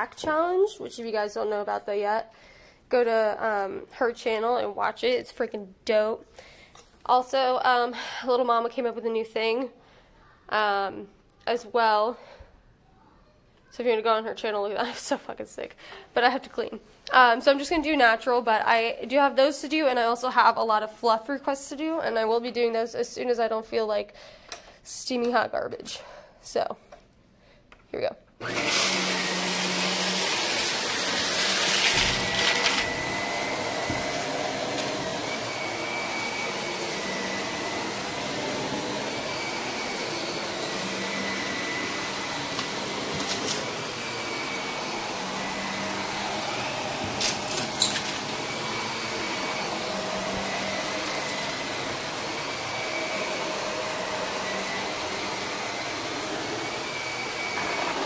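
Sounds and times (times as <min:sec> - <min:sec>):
vacuum cleaner running on carpet: 0:28.4 - 0:58.0.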